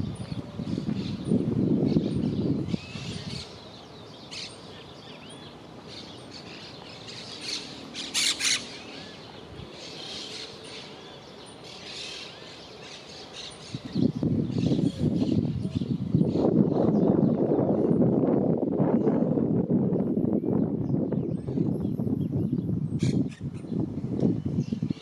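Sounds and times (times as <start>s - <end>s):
parakeets chirping and squawking: 5.9s - 16.4s.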